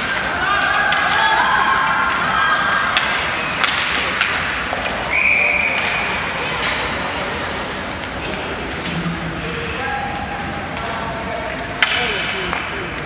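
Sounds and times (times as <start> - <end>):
arena crowd noise: 0.0 - 13.0
hockey sticks and puck clacking: 0.0 - 13.0
referee whistle blast: 5.1 - 5.8.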